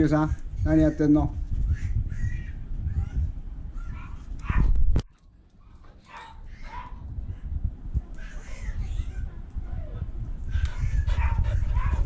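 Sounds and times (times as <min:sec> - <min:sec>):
dog barking: 0:03.9 - 0:04.7, 0:05.6 - 0:07.1, 0:11.2 - 0:12.0.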